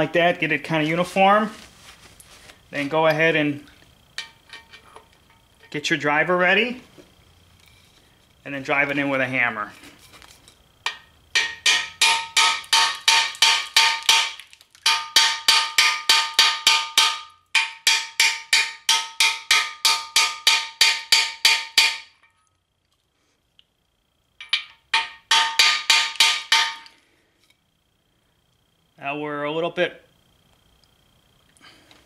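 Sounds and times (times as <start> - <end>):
hammer striking metal: 10.8 - 22.3, 24.4 - 27.0.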